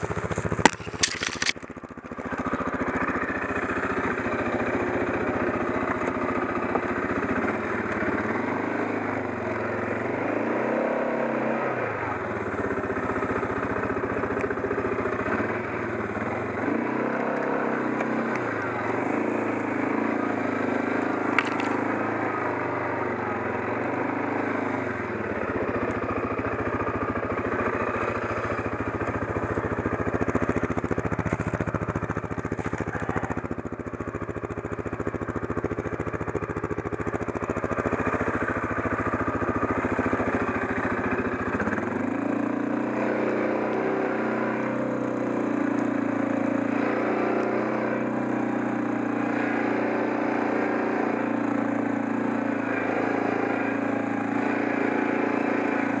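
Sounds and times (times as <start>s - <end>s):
tree trunk dragging on ground: 0.0s - 1.6s, 21.3s - 21.8s
quad engine running: 0.0s - 56.0s
sharp click: 0.6s - 1.7s.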